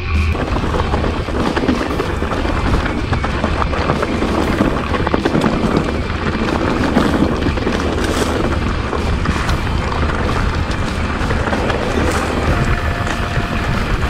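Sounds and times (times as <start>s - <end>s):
bike knocking and rattling: 0.0s - 14.0s
wind buffeting microphone: 0.0s - 14.0s
tyres rumbling on stones: 0.1s - 14.0s.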